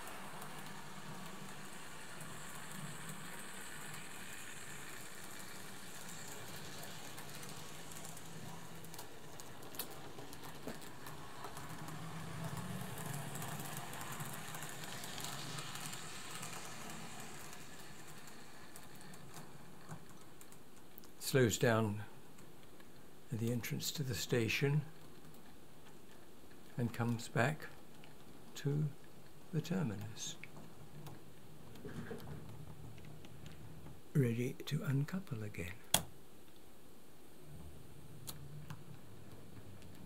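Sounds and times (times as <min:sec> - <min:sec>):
model train motor whirring: 0:00.0 - 0:20.2.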